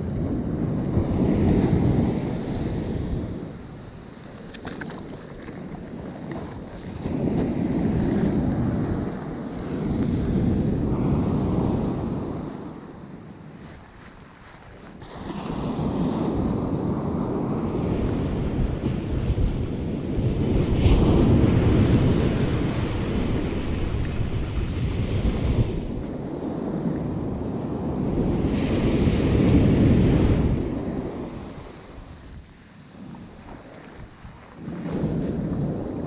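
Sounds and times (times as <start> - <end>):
wind buffeting microphone: 0.0 - 36.0
ocean surf breaking: 14.8 - 32.3.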